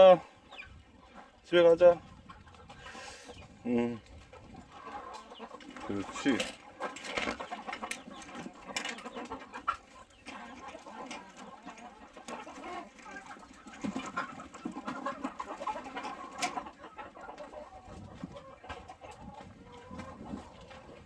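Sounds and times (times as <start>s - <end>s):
chickens clucking: 0.0s - 21.0s.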